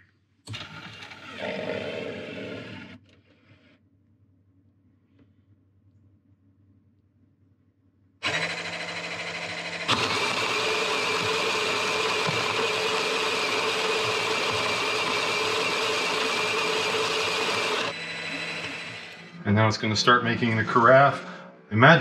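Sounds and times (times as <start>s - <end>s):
coffee grinder motor: 0.5s - 3.0s, 8.2s - 19.5s.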